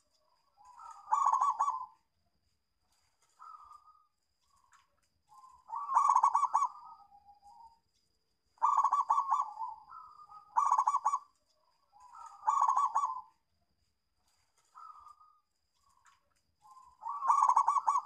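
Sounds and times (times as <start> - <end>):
dove cooing: 0.6 - 2.0, 5.3 - 7.7, 8.6 - 11.3, 12.0 - 13.4, 16.6 - 18.0.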